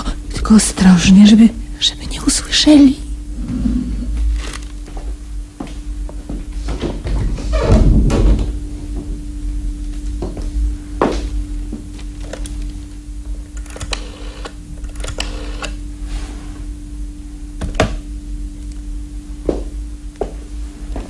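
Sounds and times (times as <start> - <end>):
steady low hum: 0.0 - 21.0
scattered clicks and knocks: 13.6 - 15.7.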